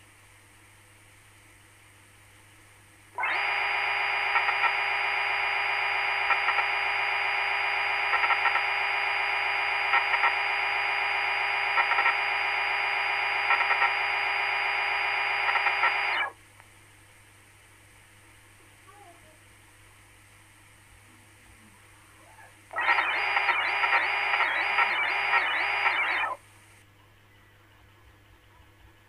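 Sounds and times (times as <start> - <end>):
steady machine buzzing tone: 3.2 - 16.4, 22.7 - 26.4.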